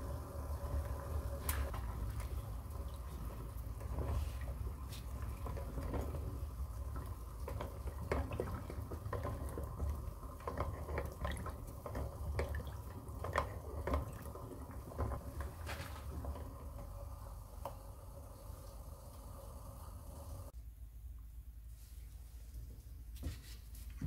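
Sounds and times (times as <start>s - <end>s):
low steady rumble: 0.0s - 10.5s.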